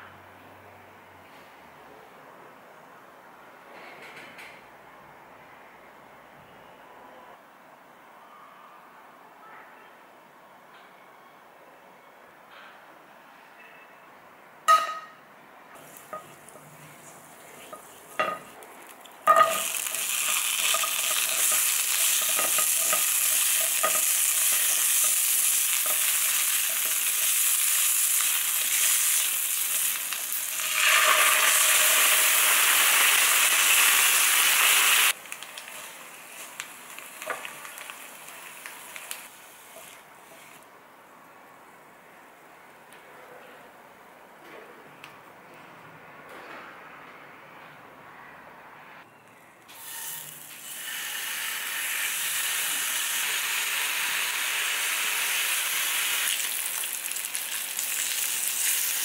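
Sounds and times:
utensils knocking on a pan: 14.7 - 15.2, 17.7 - 18.5, 19.3 - 25.2
vegetables sizzling in a frying pan: 15.8 - 18.6, 19.2 - 40.6, 49.8 - 59.0.

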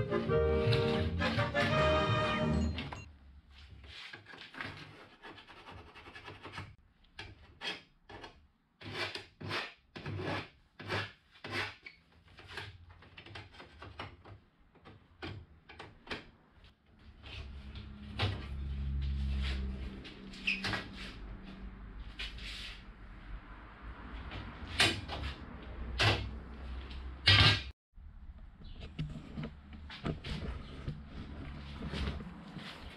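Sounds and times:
hand file scraping metal: 4.0 - 14.0.

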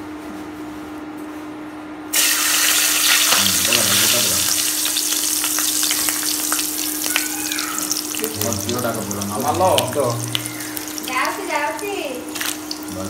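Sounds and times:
food sizzling in hot oil: 2.1 - 13.0.

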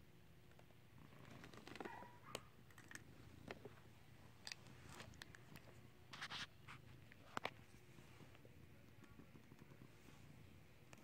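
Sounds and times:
scratchy rustle: 6.1 - 8.3.

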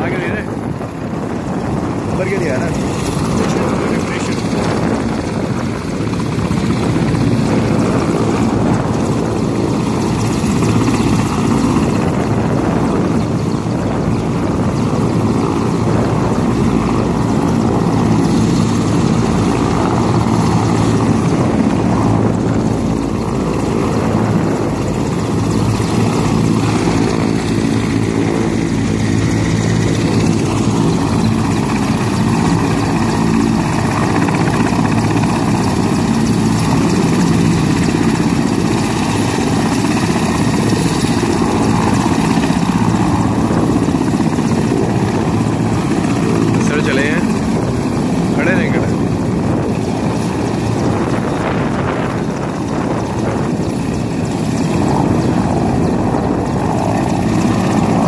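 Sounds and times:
helicopter engines and rotor: 0.0 - 58.0.

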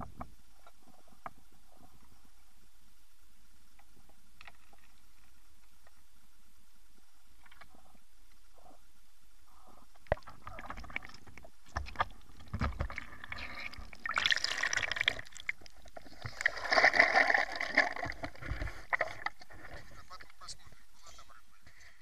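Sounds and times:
water gurgling and rushing: 10.1 - 19.6.

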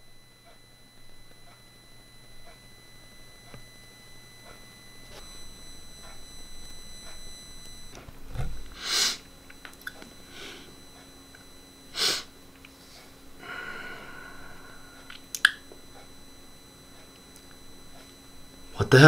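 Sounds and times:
faint electrical buzz: 0.0 - 19.0
high whine: 0.0 - 19.0
loud breaths close to microphone: 10.2 - 10.8, 11.9 - 15.2
short held tone: 13.4 - 16.4.

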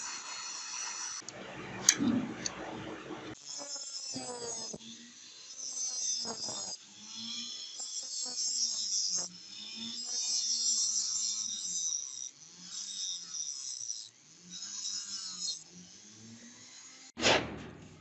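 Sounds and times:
rotary tool grinding metal: 0.0 - 2.6, 3.3 - 18.0
motor hum: 1.2 - 3.4.

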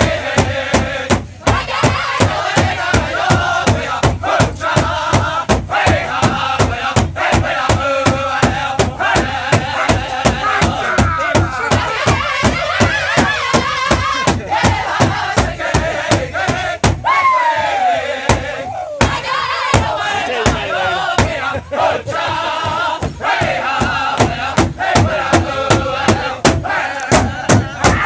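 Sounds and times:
bass drum beat: 0.0 - 28.0
group singing in high voices: 0.0 - 28.0
long high falling cry: 17.0 - 18.0, 18.6 - 19.0.

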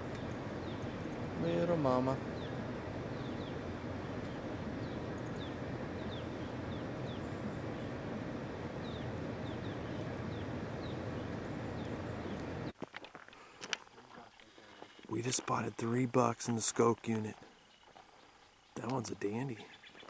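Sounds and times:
bird chirping: 0.0 - 12.8, 14.2 - 20.0
low rumble: 0.0 - 12.8.

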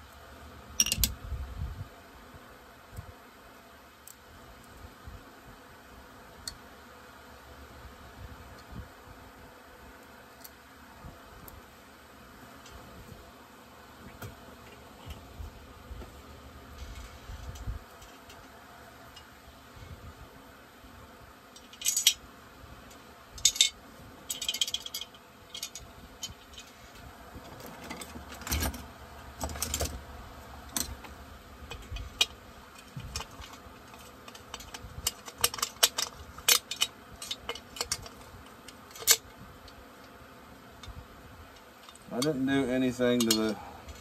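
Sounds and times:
metal parts clinking: 0.8 - 1.1, 21.6 - 22.2, 23.4 - 26.8, 31.7 - 39.3, 43.2 - 44.0.

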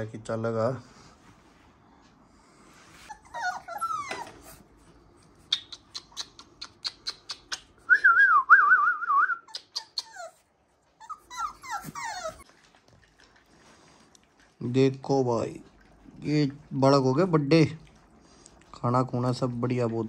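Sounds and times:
puppies whining: 3.0 - 4.8, 9.4 - 12.6.

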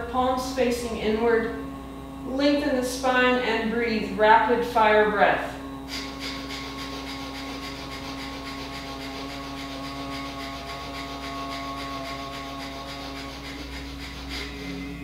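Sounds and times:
steady background tones: 0.0 - 15.0
rapid forceful nose exhalations: 5.8 - 15.0.

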